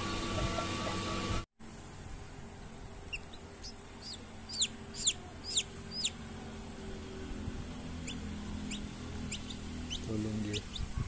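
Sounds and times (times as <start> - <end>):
chick peeping: 3.1 - 6.2, 8.0 - 11.0.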